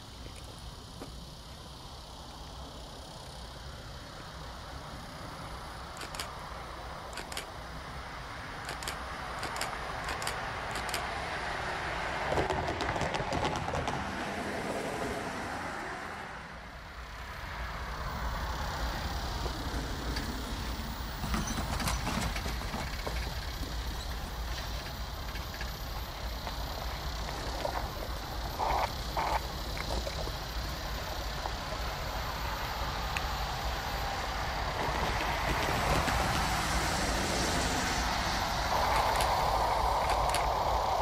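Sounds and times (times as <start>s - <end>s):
locomotive engine and wheels rumbling: 0.0s - 41.0s
sharp clicks: 6.0s - 6.4s, 7.1s - 7.6s, 8.6s - 11.1s, 38.8s - 40.6s.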